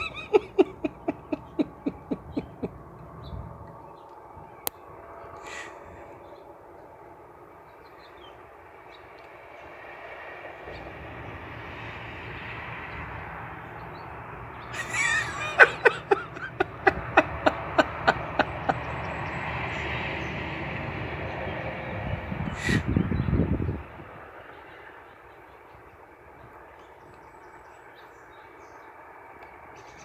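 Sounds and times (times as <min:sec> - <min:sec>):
sharp animal calls: 0:22.5 - 0:22.9.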